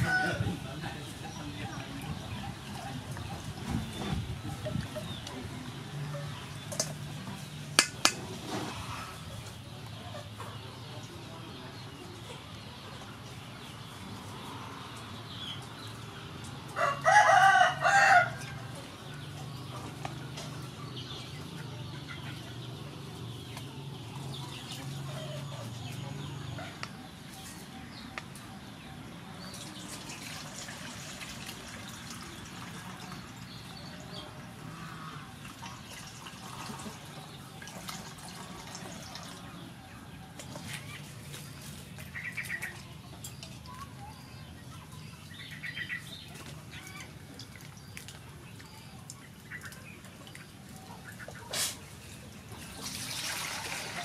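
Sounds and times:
rooster crowing: 0:16.8 - 0:18.4.

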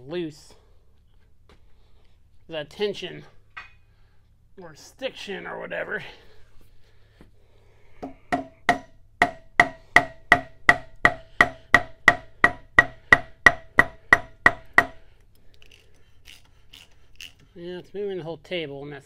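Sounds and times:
mallet striking metal wrench: 0:08.0 - 0:15.0.

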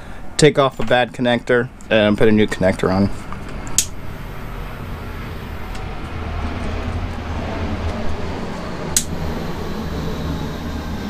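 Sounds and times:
sharp click: 0:03.7 - 0:04.0
butane torch hissing: 0:07.7 - 0:11.0.

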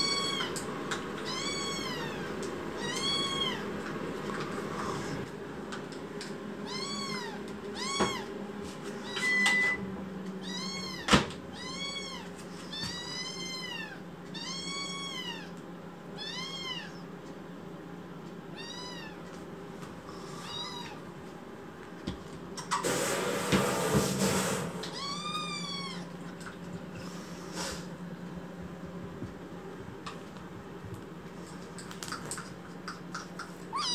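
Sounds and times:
kitten meowing: 0:00.0 - 0:00.6, 0:01.2 - 0:03.6, 0:06.6 - 0:08.3, 0:10.4 - 0:15.5, 0:16.2 - 0:17.0, 0:18.6 - 0:19.2, 0:20.4 - 0:21.0, 0:24.9 - 0:26.1
steady low hum: 0:24.8 - 0:33.9.

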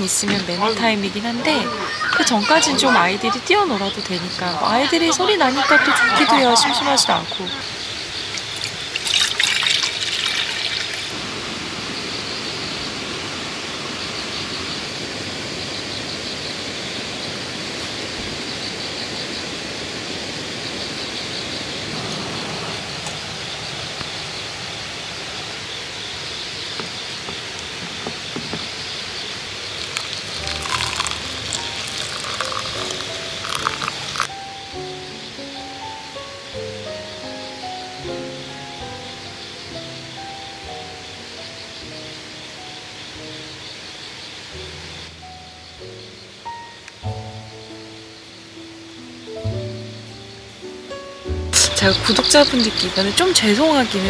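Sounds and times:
rushing hiss: 0:07.6 - 0:34.5
music: 0:29.9 - 0:54.0.

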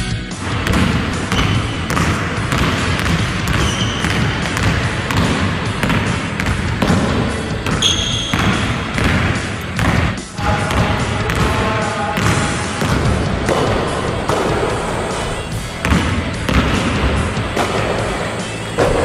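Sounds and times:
basketball dribbling on hardwood: 0:00.4 - 0:14.5, 0:15.8 - 0:17.7.

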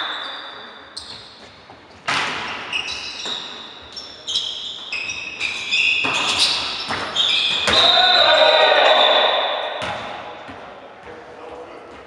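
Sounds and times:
shoes squeaking on court floor: 0:00.0 - 0:11.3
volleyball struck: 0:09.4 - 0:10.7.

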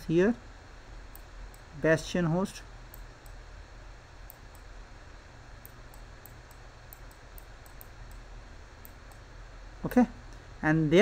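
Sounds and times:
faint steady hiss: 0:00.0 - 0:11.0
computer mouse clicks: 0:05.6 - 0:08.2.

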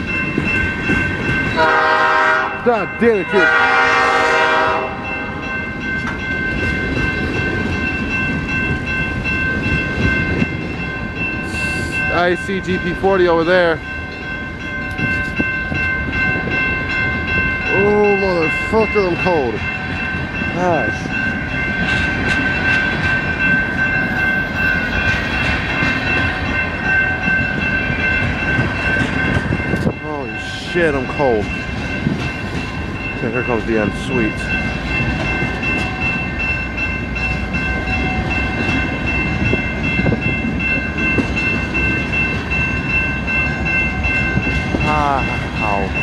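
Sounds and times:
crossing signal bell ringing: 0:00.0 - 0:46.0
freight train cars rumbling and rattling: 0:00.0 - 0:46.0
locomotive horn chord: 0:01.6 - 0:02.7, 0:03.4 - 0:05.1.

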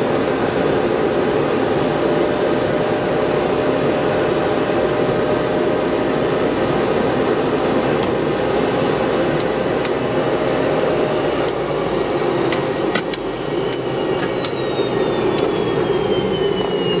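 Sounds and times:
helicopter turbine whine spooling down: 0:00.0 - 0:17.0
sharp clicks: 0:12.2 - 0:14.7.

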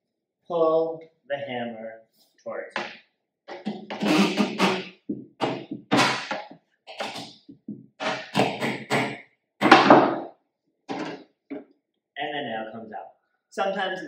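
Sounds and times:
hammer prying nail from wood: 0:03.5 - 0:07.3, 0:08.0 - 0:10.2.

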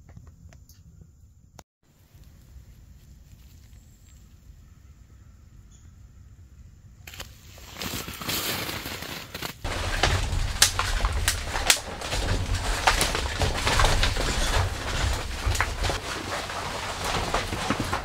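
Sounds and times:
dry branches snapping: 0:07.1 - 0:18.0
twigs rustling: 0:07.1 - 0:18.0.

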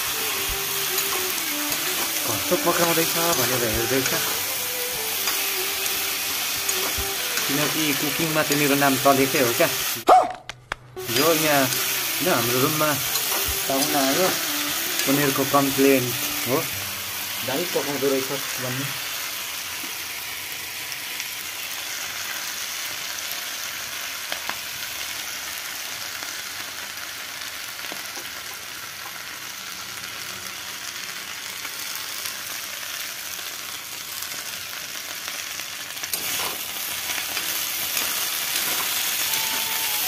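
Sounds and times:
vegetables sizzling in a pan: 0:00.0 - 0:10.0, 0:11.0 - 0:40.0
steel spoon scraping a pan: 0:00.8 - 0:09.6, 0:36.1 - 0:39.2.

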